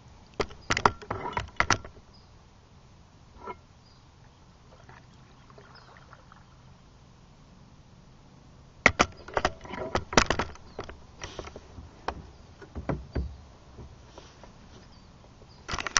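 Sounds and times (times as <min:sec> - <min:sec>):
knocks and clicks against kayak: 0:00.4 - 0:02.0, 0:08.9 - 0:13.9.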